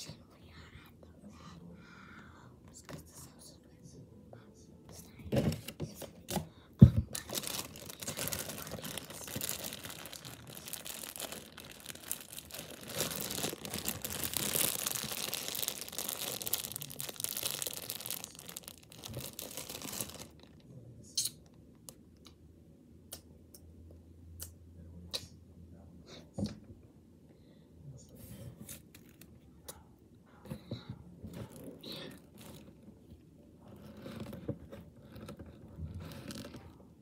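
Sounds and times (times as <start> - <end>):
plastic bag of slime crinkling: 5.3 - 20.6, 31.3 - 32.9, 33.7 - 36.8.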